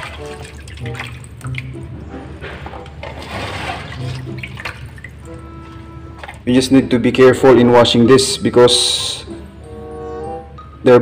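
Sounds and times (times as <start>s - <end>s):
water swishing and splashing in basin: 0.0s - 2.1s, 2.8s - 6.6s.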